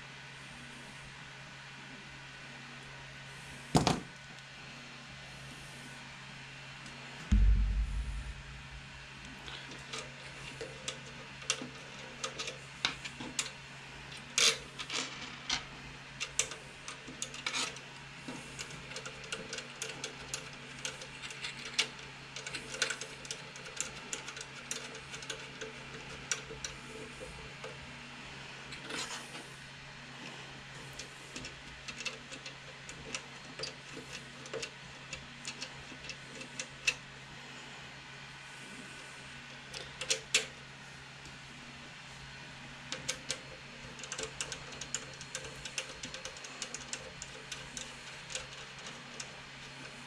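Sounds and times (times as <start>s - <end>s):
low hum: 7.3s - 9.4s.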